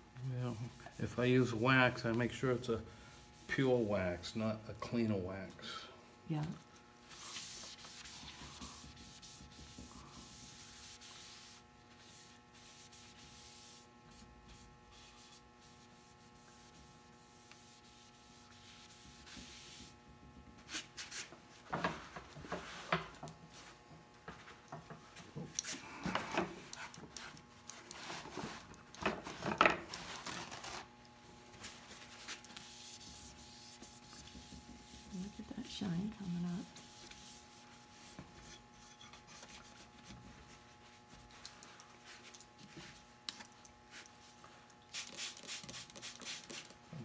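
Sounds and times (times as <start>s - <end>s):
paper towel rubbing on wood: 7.1s - 20.0s, 31.6s - 38.5s.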